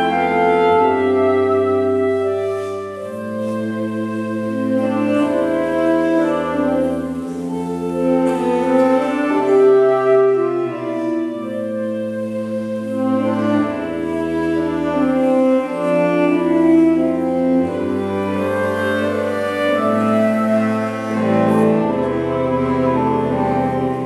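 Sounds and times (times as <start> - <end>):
saxophone quartet playing slow chords: 0.0 - 24.0.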